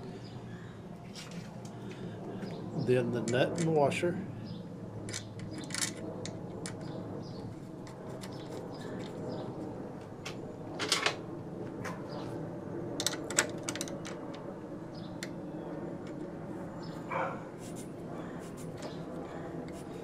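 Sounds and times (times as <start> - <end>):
clicks and rattles of fitting a nut: 3.2 - 3.8, 5.0 - 6.9, 7.8 - 9.2, 13.0 - 14.4.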